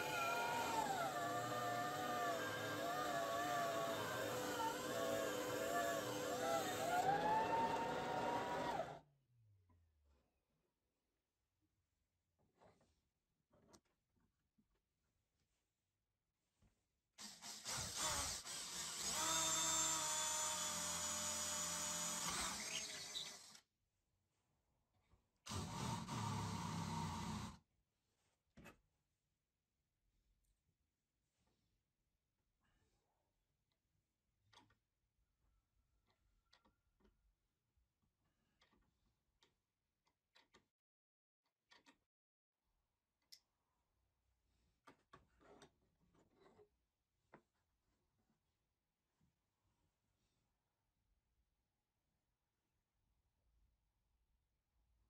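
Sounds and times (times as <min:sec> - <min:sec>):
electric drill boring into wood: 0:00.0 - 0:09.0, 0:17.2 - 0:23.6, 0:25.5 - 0:27.6.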